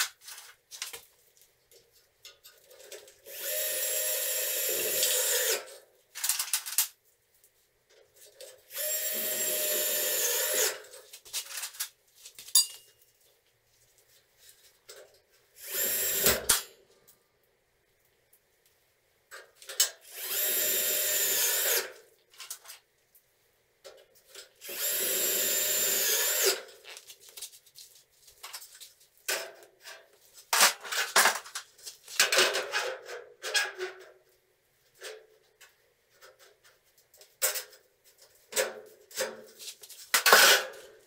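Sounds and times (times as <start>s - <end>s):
cordless drill driving screws: 3.3s - 5.7s, 8.7s - 10.9s, 15.6s - 16.6s, 20.1s - 22.0s, 24.6s - 26.7s.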